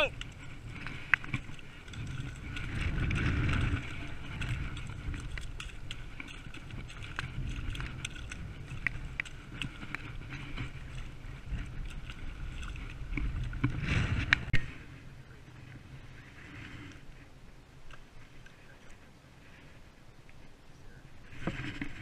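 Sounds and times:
wind buffeting microphone: 0.0 - 18.8
light clicks and rustles: 0.1 - 14.7.

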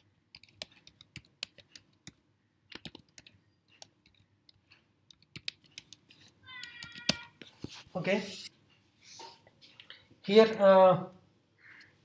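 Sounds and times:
computer keyboard typing: 0.3 - 7.4.

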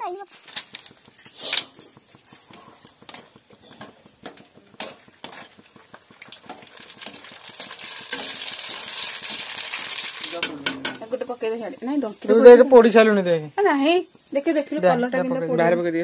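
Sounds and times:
puris deep-frying in hot oil: 0.0 - 16.0
wire strainer scraping a pan: 0.4 - 11.3.

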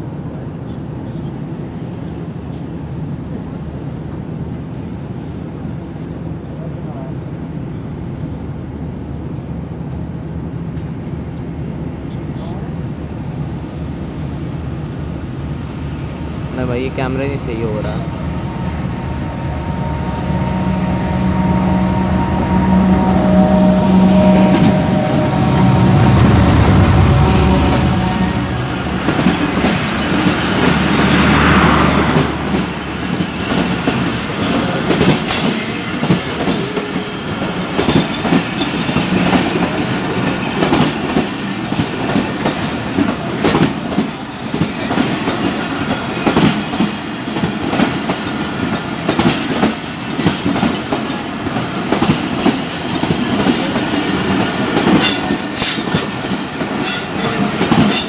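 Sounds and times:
diesel locomotive drone: 0.0 - 58.0
train wheels clacking on rail joints: 27.7 - 58.0.

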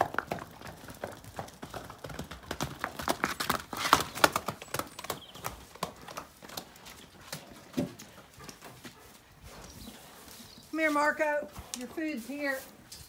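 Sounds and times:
horse hooves clopping on concrete: 0.0 - 13.0.

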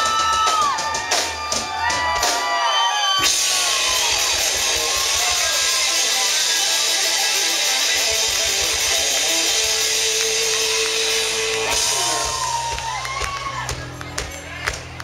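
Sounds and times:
bass guitar: 0.0 - 15.0
drums: 0.0 - 15.0
electric guitars: 3.2 - 15.0.

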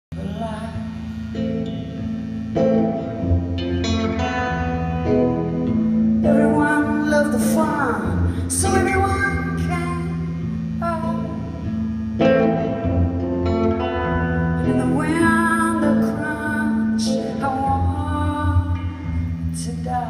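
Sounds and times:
electric guitar: 0.1 - 20.0
woman singing: 0.2 - 1.8, 6.2 - 11.8, 14.6 - 20.0.

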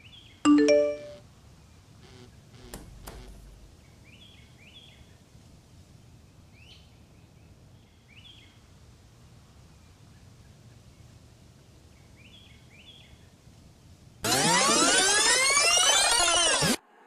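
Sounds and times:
low background hiss: 0.0 - 14.3
sharp clicks: 2.6 - 3.6.

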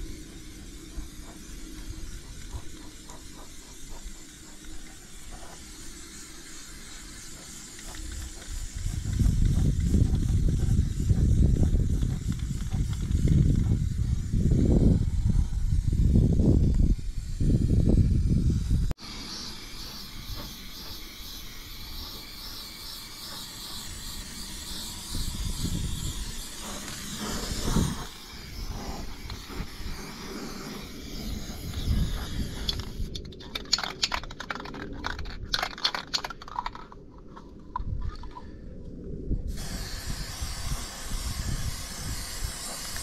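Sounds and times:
spray can hissing: 0.0 - 14.6, 15.7 - 36.5, 39.5 - 43.0
spray can rattling when shaken: 0.0 - 14.6, 20.3 - 38.0.

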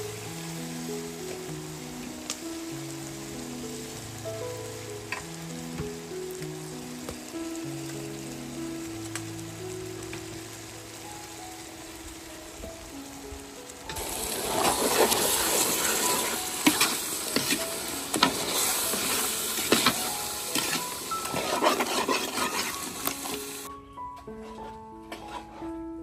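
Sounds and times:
sizzling: 0.0 - 26.0
soft background music: 0.0 - 26.0
ladle stirring in a metal pot: 14.0 - 23.7.

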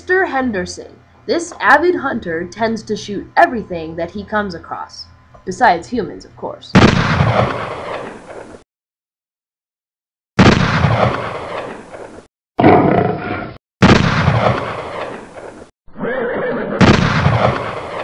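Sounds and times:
pistol gunshots: 6.8 - 7.9, 10.4 - 11.6, 13.8 - 15.0, 16.8 - 18.0
animal roaring: 12.6 - 13.6.

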